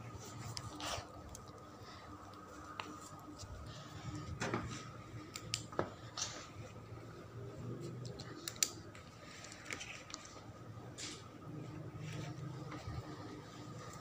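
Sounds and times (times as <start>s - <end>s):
faint steady hum: 0.0s - 14.0s
pen clicks: 7.9s - 10.2s.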